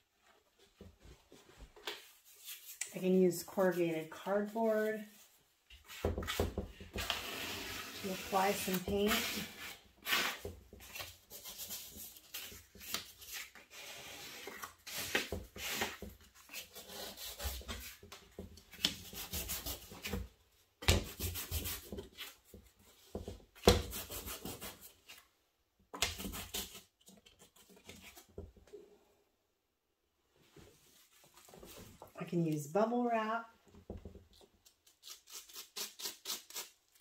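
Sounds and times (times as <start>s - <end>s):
cardboard scraping across paper: 7.0s - 12.6s.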